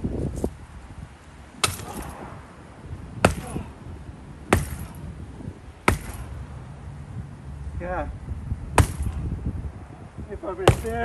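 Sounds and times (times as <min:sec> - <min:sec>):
sledgehammer striking wood: 0:01.6 - 0:02.2, 0:03.2 - 0:03.7, 0:04.5 - 0:05.1, 0:05.8 - 0:06.4, 0:08.7 - 0:09.3, 0:10.6 - 0:11.0.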